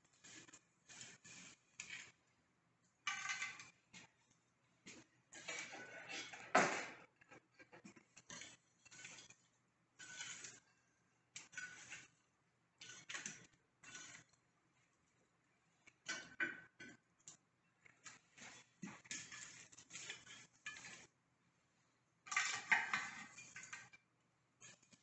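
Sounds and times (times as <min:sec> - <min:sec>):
iron tool scraping and clinking: 0:10.0 - 0:10.6.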